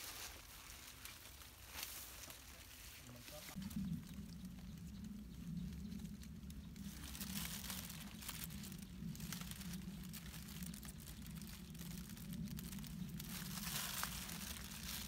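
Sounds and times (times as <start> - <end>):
leaves rustling and snapping: 0.0 - 15.0
low steady hum: 1.3 - 15.0
plastic bag crinkling: 6.8 - 15.0.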